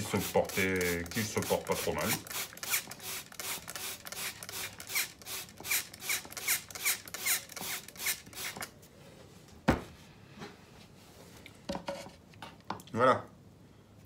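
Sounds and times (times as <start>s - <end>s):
spray bottle hissing sprays: 0.0s - 8.7s.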